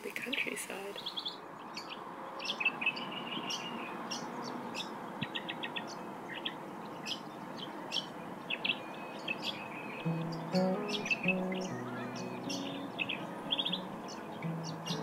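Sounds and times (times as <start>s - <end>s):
birds chirping: 0.0s - 15.0s
steady low hiss: 10.1s - 15.0s.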